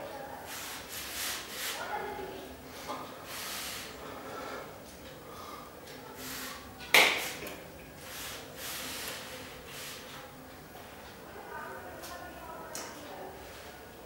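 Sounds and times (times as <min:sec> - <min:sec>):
sharp hand clap: 0:06.9 - 0:07.5.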